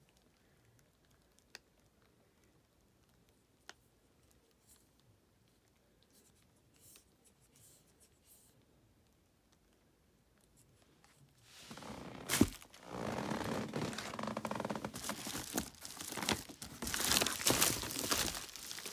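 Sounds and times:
soft scratchy rustles: 0:10.4 - 0:18.9.

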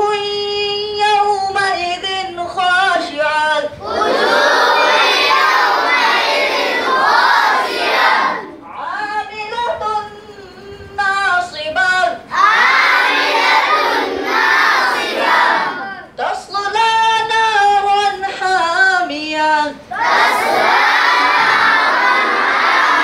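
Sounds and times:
boy reciting alone: 0:00.0 - 0:23.0
group of boys chanting: 0:03.8 - 0:08.6, 0:12.3 - 0:16.0, 0:19.9 - 0:23.0.

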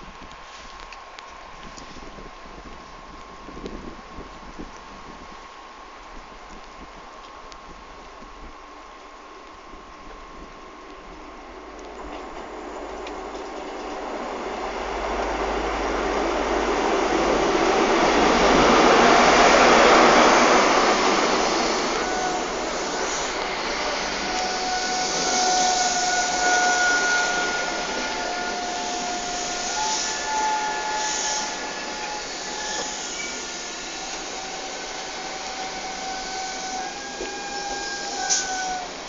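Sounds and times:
train running past: 0:10.7 - 0:39.0.

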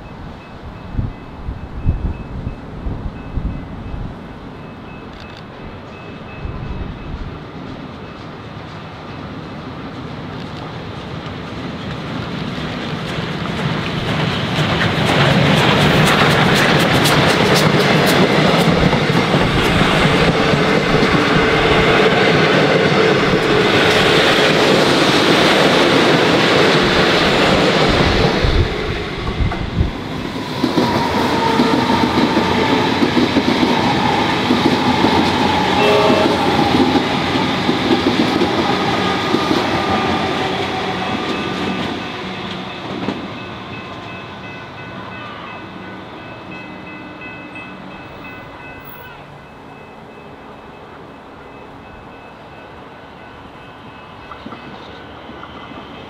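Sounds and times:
train wheels clattering over joints: 0:11.3 - 0:28.6.

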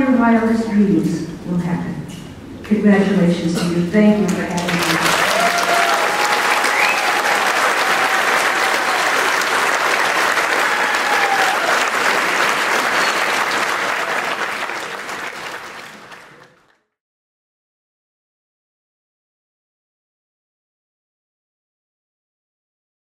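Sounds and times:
audience applauding: 0:04.3 - 0:16.9.

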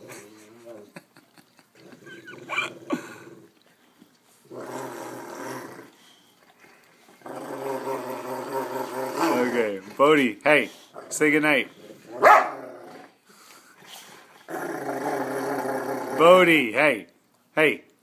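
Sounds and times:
dog growling: 0:01.8 - 0:03.6, 0:04.4 - 0:06.2, 0:07.2 - 0:10.0, 0:10.8 - 0:13.2, 0:14.4 - 0:16.4
dog whining: 0:02.1 - 0:02.7.

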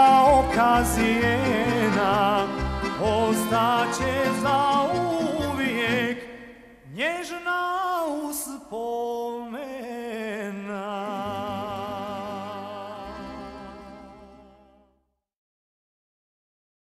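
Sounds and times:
instrumental accompaniment: 0:00.0 - 0:06.8, 0:11.2 - 0:14.9
man singing with vibrato: 0:00.0 - 0:14.9.

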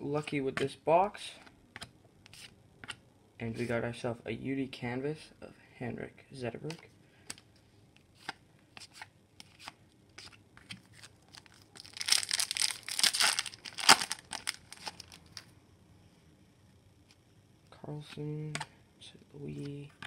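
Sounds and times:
wrapper tearing open: 0:10.9 - 0:15.4.

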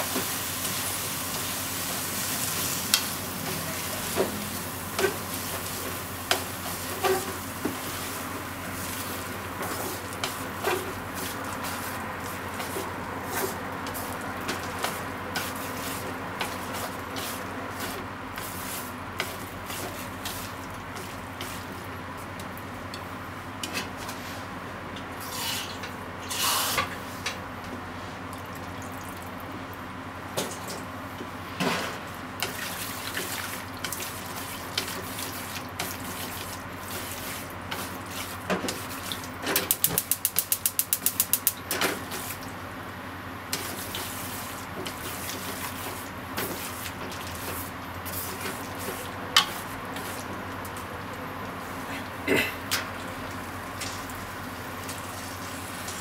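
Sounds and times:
vegetables sizzling in a frying pan: 0:00.0 - 0:21.8, 0:53.1 - 0:56.0
chopsticks scraping a pan: 0:25.3 - 0:26.8.

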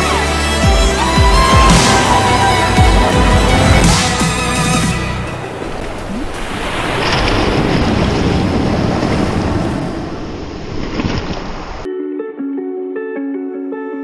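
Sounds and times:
music: 0:00.0 - 0:06.0, 0:11.9 - 0:14.0
sea waves washing in: 0:01.4 - 0:11.8.

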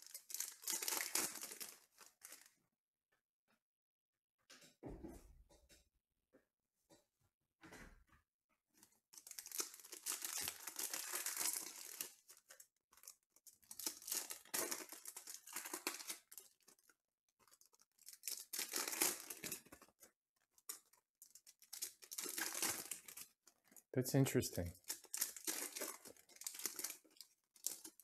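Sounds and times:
foil wrappers tearing and crinkling: 0:00.0 - 0:02.5, 0:09.2 - 0:20.0, 0:20.7 - 0:23.4, 0:24.8 - 0:28.0.

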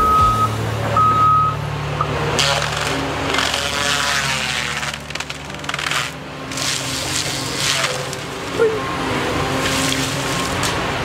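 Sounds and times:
high beep: 0:00.0 - 0:02.1
diesel engine drone: 0:00.0 - 0:11.0.

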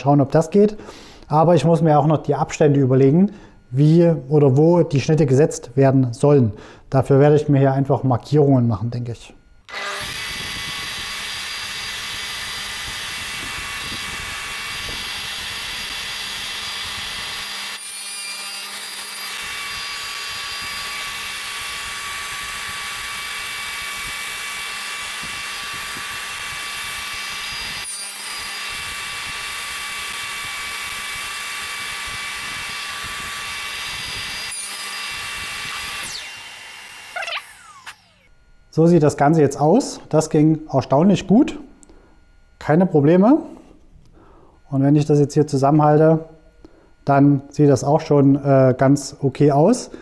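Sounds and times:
table saw cutting wood: 0:09.7 - 0:38.3.

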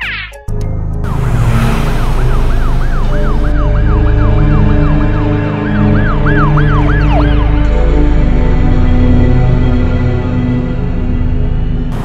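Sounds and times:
cartoon siren yelp: 0:01.1 - 0:05.1.

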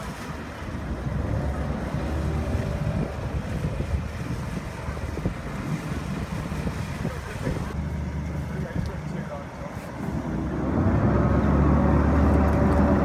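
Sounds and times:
diesel engines rumbling: 0:00.0 - 0:13.0
water gushing: 0:00.0 - 0:13.0
wind buffeting microphone: 0:00.0 - 0:13.0.

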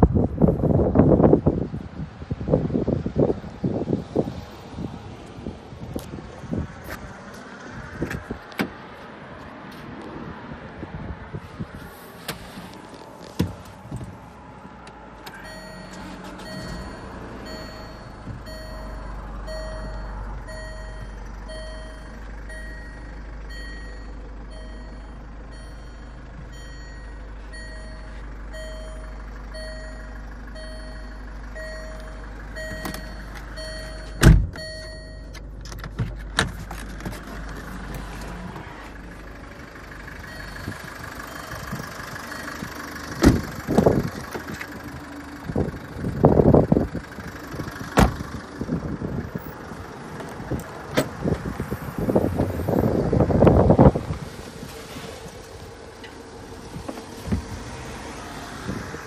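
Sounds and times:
low steady rumble: 0:10.8 - 0:59.0
electronic warning chime: 0:15.4 - 0:25.0
loud thump: 0:34.2 - 0:34.6.

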